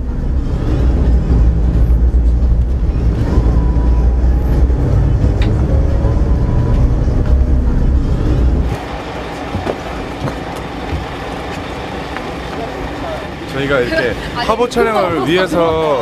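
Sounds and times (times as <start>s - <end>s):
music playing: 0.0s - 10.9s
bus engine rumble: 0.0s - 16.0s.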